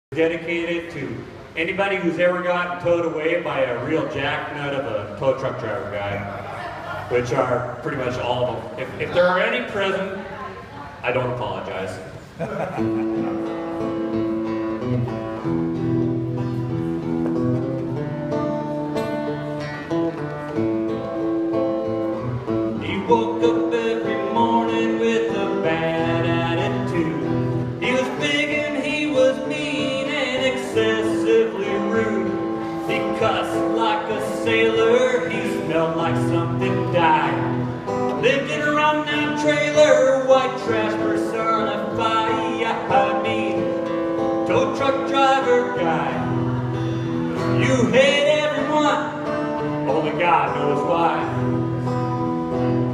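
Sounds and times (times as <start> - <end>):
acoustic guitar strumming: 11.4 - 52.9
man singing: 22.7 - 46.6, 47.4 - 51.6.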